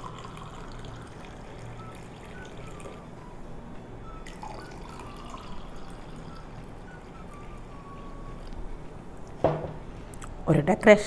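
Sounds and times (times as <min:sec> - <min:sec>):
juice pouring into a glass: 0:00.0 - 0:03.1, 0:04.1 - 0:08.1.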